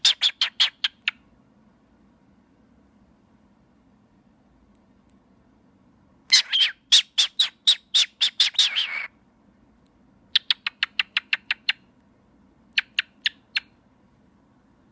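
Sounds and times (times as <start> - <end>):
cockatiel chirping: 0.0 - 1.2, 6.3 - 9.1, 10.3 - 11.9, 12.7 - 13.8.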